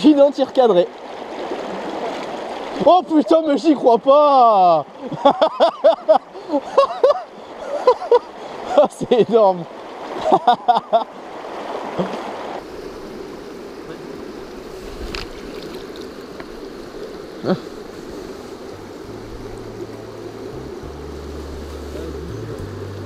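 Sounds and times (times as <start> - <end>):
rushing stream water: 0.0 - 23.0
low bass background music: 18.7 - 23.0.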